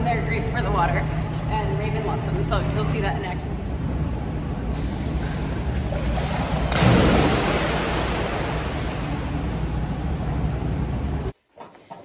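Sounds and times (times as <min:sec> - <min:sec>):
low hum: 0:00.0 - 0:11.4
water washing: 0:05.0 - 0:11.3
dog splashing into pool: 0:05.9 - 0:09.3.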